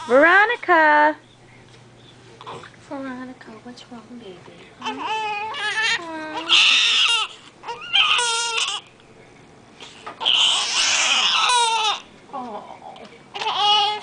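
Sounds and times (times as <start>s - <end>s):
newborn baby crying: 4.8s - 8.9s, 10.0s - 12.1s, 13.3s - 14.0s.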